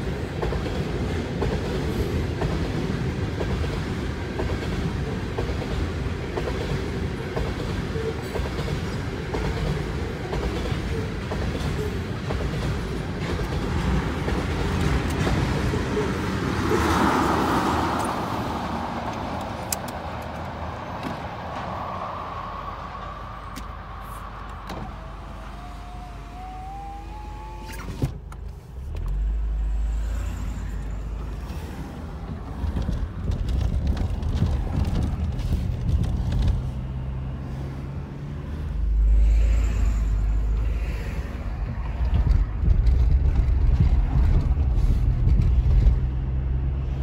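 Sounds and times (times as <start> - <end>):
car engine and tyre noise: 0.0 - 47.0
small electric motor whining: 25.0 - 28.0.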